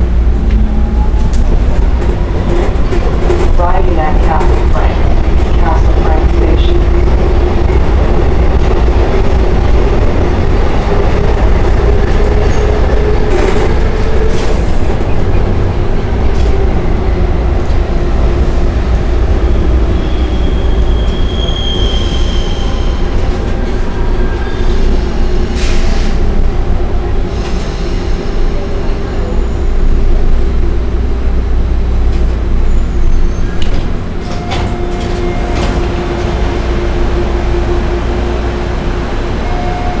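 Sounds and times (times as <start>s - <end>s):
subway wheels rumbling on rail: 0.0s - 40.0s
high wheel squeal: 19.9s - 23.2s.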